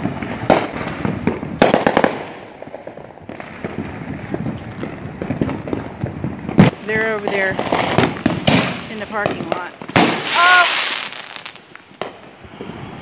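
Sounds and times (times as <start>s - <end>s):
firework crackle of small pops: 0.0s - 13.0s
firework cracks: 0.0s - 13.0s
firework bang: 7.8s - 12.9s.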